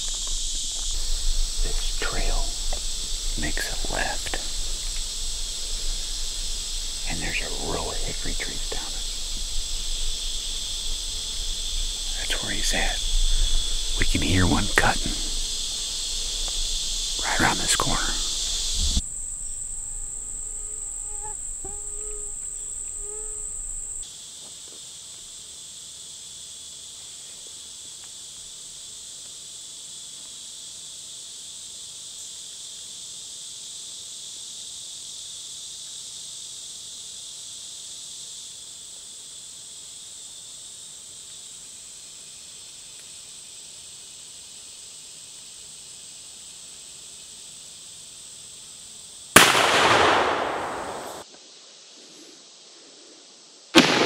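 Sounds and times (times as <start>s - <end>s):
insects droning: 0.0s - 54.0s
shotgun blast: 49.4s - 51.2s, 53.8s - 54.0s.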